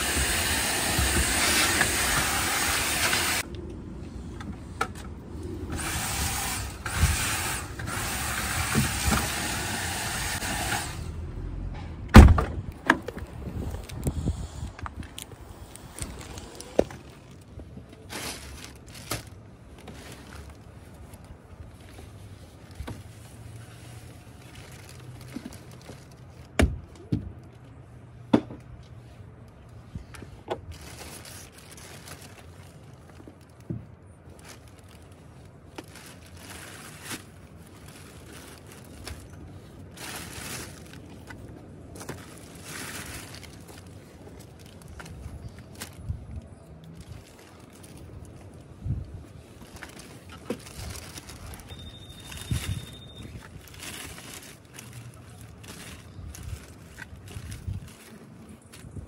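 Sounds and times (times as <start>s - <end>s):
plastic wrappers crinkling: 14.9s - 27.8s, 30.6s - 59.0s.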